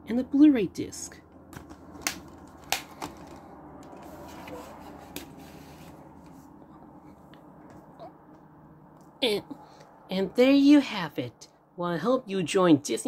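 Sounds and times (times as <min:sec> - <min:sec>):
plastic case clicks: 0:01.5 - 0:03.4
plastic case rustling: 0:01.5 - 0:06.0.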